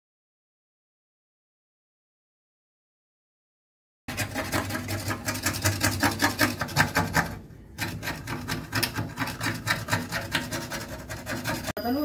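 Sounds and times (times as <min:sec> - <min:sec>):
scraper scraping paint off metal: 0:04.1 - 0:11.8.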